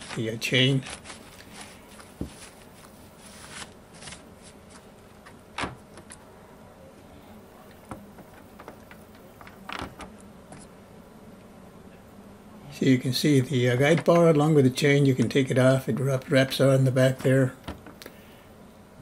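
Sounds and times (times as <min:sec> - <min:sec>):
tissue rubbing metal bar: 0:00.0 - 0:04.9.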